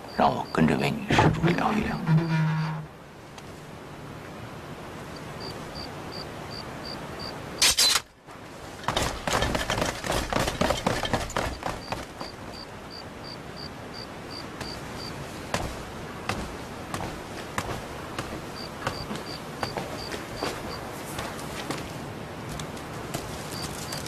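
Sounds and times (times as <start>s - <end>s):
crickets chirping: 0.0s - 2.9s, 5.0s - 7.7s, 10.6s - 21.5s, 23.1s - 24.0s
loud clattering knocks: 8.8s - 12.4s.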